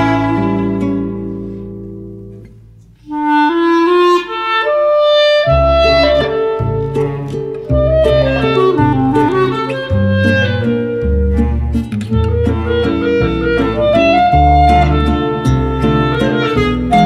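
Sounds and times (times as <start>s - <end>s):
low bass notes: 5.4s - 17.0s
melody of short stepped notes: 5.5s - 17.0s.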